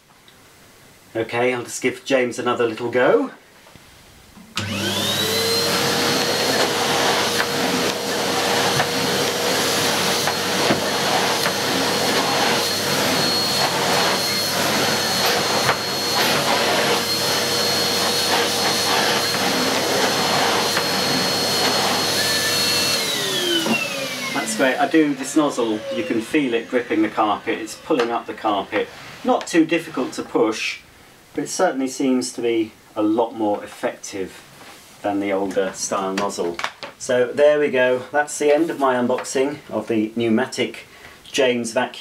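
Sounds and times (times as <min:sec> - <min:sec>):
vacuum cleaner motor whine: 0:04.6 - 0:29.3.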